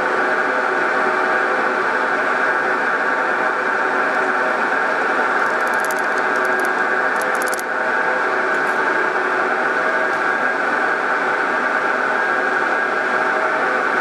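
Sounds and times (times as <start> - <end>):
milling machine whining: 4.5 - 7.7
faint high ticks: 5.4 - 7.6.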